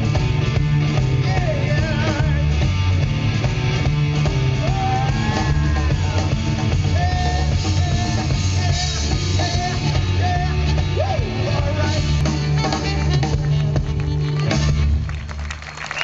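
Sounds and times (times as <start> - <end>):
blues-rock band playing: 0.0 - 15.6.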